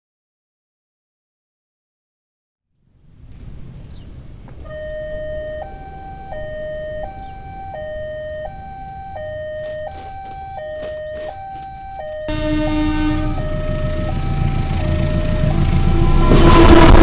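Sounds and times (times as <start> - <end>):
level crossing two-tone alarm: 4.6 - 17.0.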